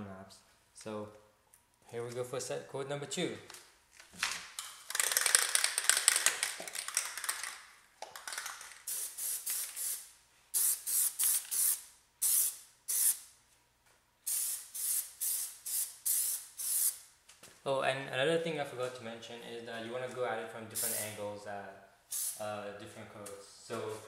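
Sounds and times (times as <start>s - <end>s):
aerosol spray can hissing: 8.8s - 13.2s, 14.3s - 17.0s, 20.8s - 21.2s, 22.1s - 22.4s.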